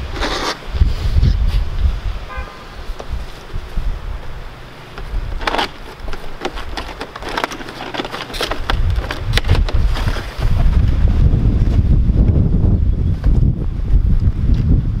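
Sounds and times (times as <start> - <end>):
wind buffeting microphone: 0.0 - 15.0
plastic clicks and rattles: 4.9 - 10.3.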